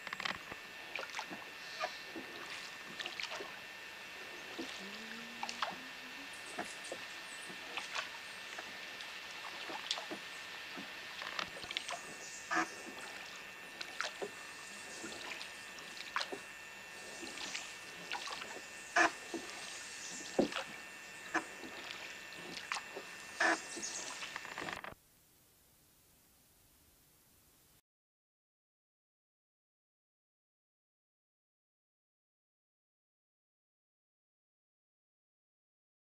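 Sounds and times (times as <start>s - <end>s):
oars splashing and knocking: 0.0s - 3.6s, 4.4s - 24.8s.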